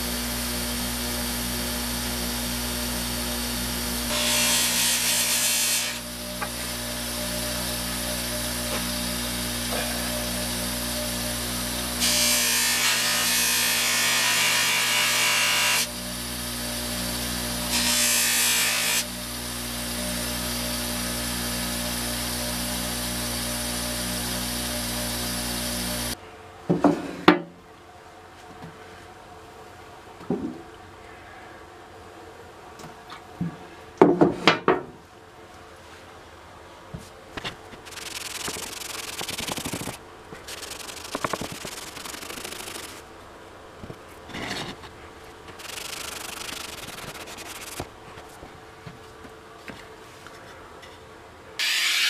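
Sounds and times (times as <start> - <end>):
bench grinder humming: 0.0 - 26.2, 37.8 - 43.1.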